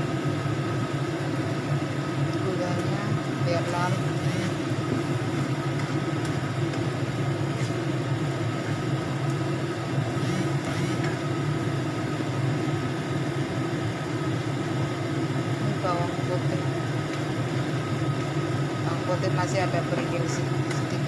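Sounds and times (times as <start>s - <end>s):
sauce frying in a wok: 0.0s - 21.0s
spatula scraping: 7.4s - 8.0s.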